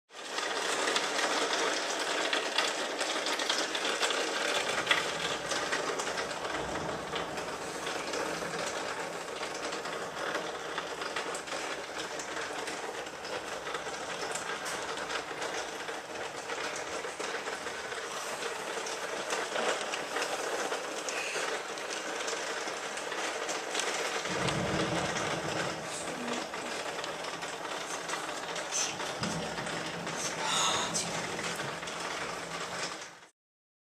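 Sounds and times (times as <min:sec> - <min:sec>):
heavy rain falling: 0:00.1 - 0:33.3
low rumble of thunder: 0:03.1 - 0:20.3, 0:23.8 - 0:33.3.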